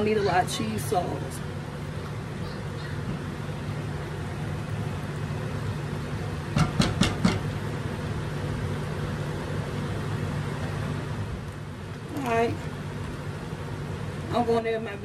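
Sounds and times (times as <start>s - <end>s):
steady low hum: 0.0s - 15.0s
spatula knocking a saucepan: 6.6s - 7.4s.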